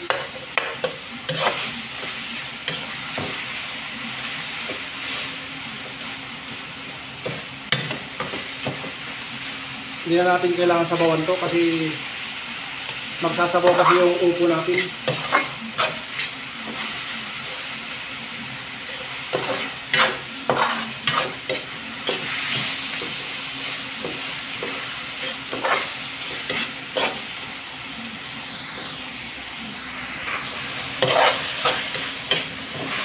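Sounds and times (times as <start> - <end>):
food sizzling in a wok: 0.0 - 33.0
metal spatula scraping pan: 14.7 - 16.8, 19.0 - 22.7, 24.6 - 27.3, 30.9 - 33.0.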